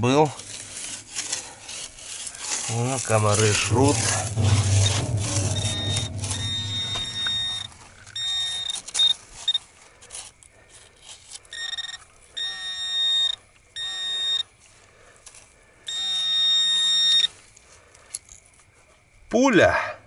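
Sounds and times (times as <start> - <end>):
metal detector beeps and tones: 5.7 - 9.6, 11.5 - 14.5, 15.9 - 17.3.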